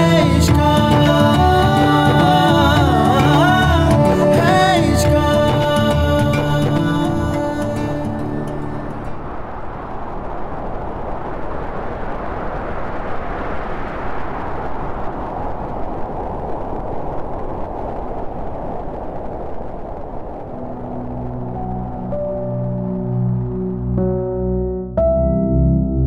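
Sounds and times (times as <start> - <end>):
soft music: 0.0 - 9.3, 20.5 - 26.0
steady rushing noise: 0.0 - 24.8.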